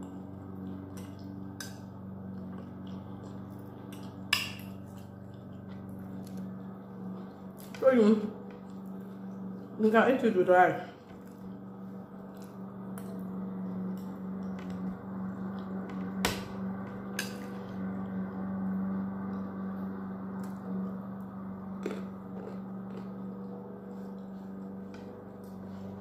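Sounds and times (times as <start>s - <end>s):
low machine hum: 0.0s - 26.0s
chewing: 0.6s - 7.8s, 21.8s - 24.4s.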